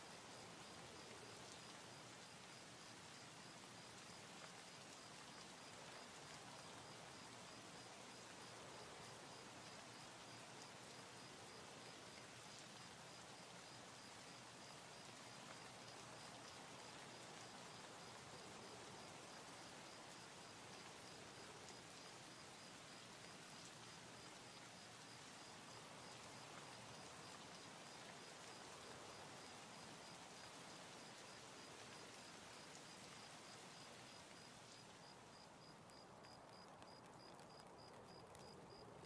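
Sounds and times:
faint hiss: 0.0 - 39.0.

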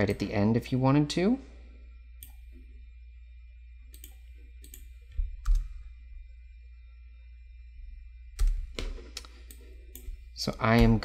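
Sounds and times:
steady low hum: 0.0 - 11.0
sharp computer clicks: 3.9 - 5.7, 8.4 - 11.0.

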